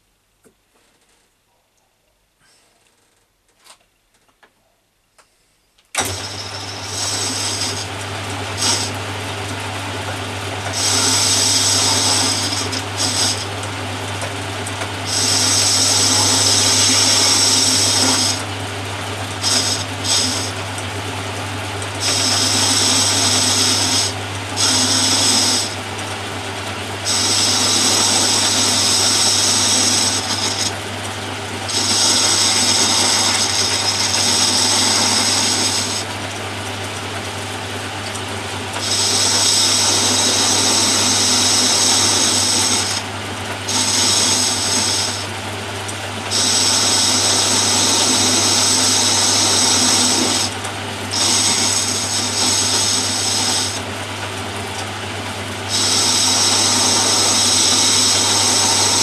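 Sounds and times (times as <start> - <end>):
high-pitched metal cutting: 6.0 - 7.9, 8.6 - 9.0, 10.7 - 13.5, 15.0 - 18.5, 19.3 - 20.6, 22.0 - 25.8, 27.0 - 30.8, 31.7 - 36.1, 38.8 - 43.0, 43.7 - 45.3, 46.3 - 53.9, 55.7 - 59.0
lathe humming: 6.0 - 59.0.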